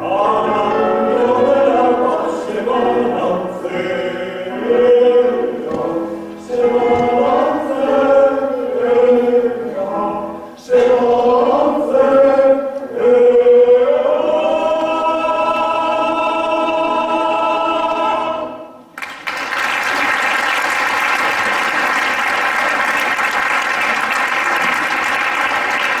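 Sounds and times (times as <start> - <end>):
male choir singing: 0.0 - 18.8
audience applause: 19.0 - 26.0.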